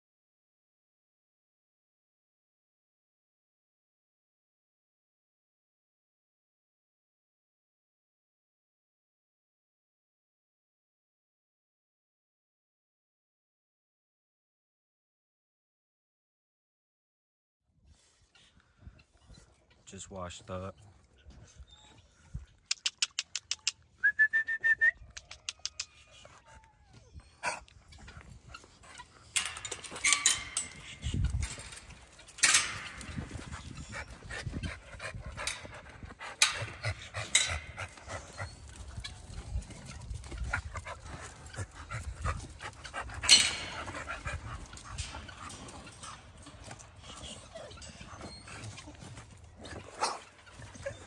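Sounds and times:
dogs whining: 0:21.6 - 0:51.0
sharp clicks: 0:22.7 - 0:23.8
dogs barking: 0:40.1 - 0:51.0.

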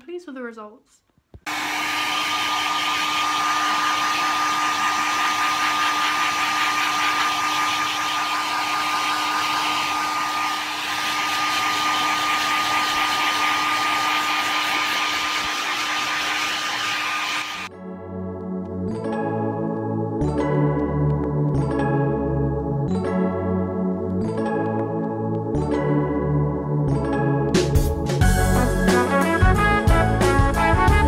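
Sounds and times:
hair dryer running: 0:01.4 - 0:17.7.

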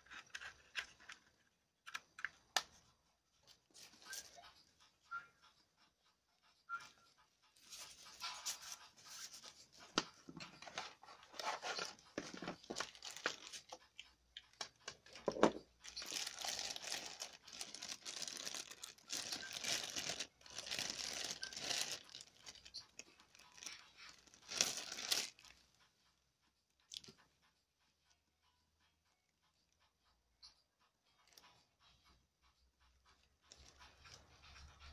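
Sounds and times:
plastic bag crinkling: 0:11.4 - 0:13.8, 0:15.2 - 0:25.5.

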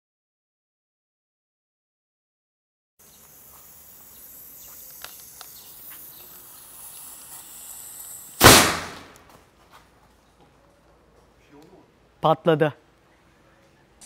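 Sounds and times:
dry ice fizzing: 0:03.0 - 0:08.4
plastic bottle bursting bang: 0:08.4 - 0:09.3.

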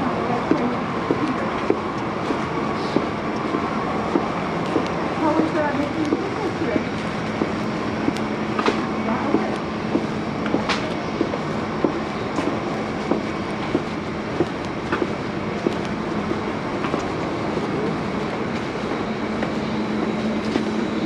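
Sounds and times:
steady low hum: 0:00.0 - 0:21.0
footsteps on hard floor: 0:07.3 - 0:15.8.

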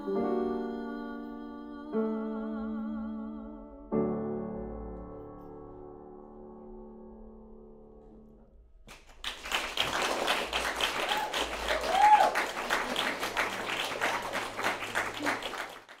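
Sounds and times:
piano: 0:00.0 - 0:16.0
audience applause: 0:08.9 - 0:16.0
audience cheer: 0:09.8 - 0:16.0.

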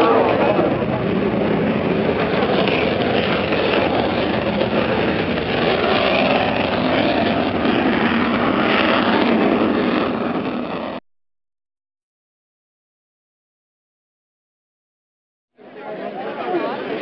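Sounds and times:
fighter jet engine roar: 0:00.0 - 0:11.0.

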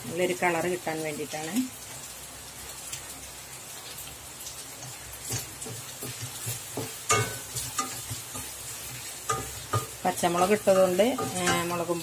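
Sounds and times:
food sizzling in a frying pan: 0:00.0 - 0:12.0
wooden spatula scraping a pan: 0:04.8 - 0:12.0.

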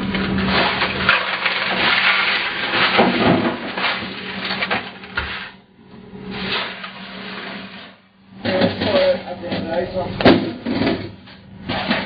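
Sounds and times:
ice crunching and rattling: 0:00.2 - 0:05.6.

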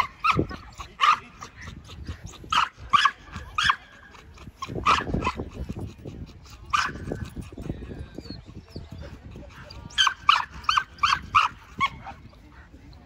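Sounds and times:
dog barking: 0:00.0 - 0:01.7, 0:04.6 - 0:05.4, 0:06.7 - 0:07.1.

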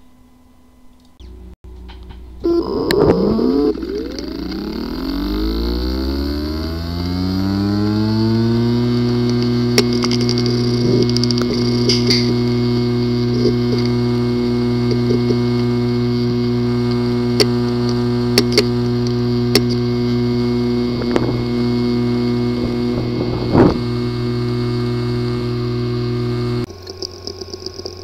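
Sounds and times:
hard drive humming: 0:00.0 - 0:28.0
hard drive clicking: 0:08.2 - 0:28.0.

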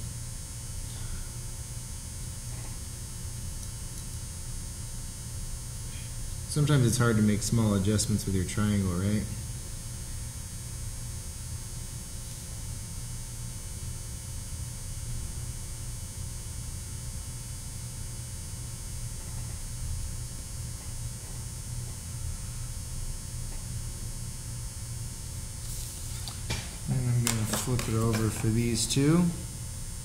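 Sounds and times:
low hum with faint buzz: 0:00.0 - 0:30.0.

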